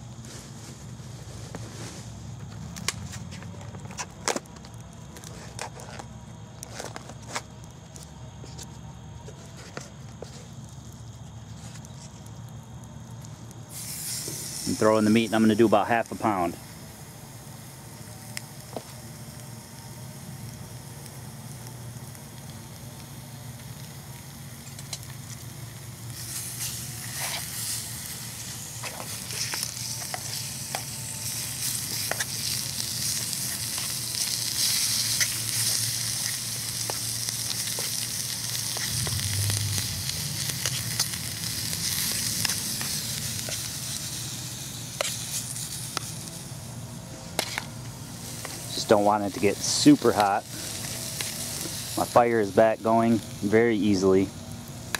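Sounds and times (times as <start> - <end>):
meat sizzling in a frying pan: 13.2 - 54.9.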